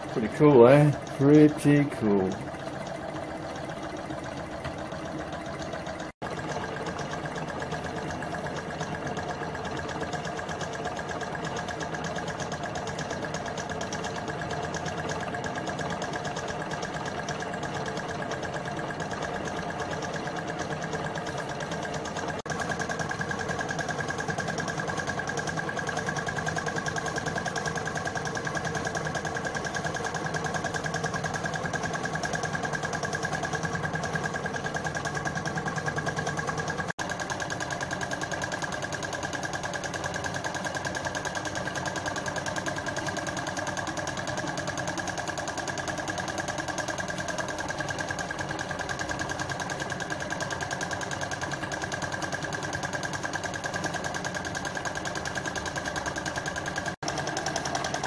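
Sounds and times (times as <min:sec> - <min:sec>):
steady whirring tone: 0:00.0 - 0:37.4
stirling engine mechanical clatter: 0:00.0 - 0:58.0.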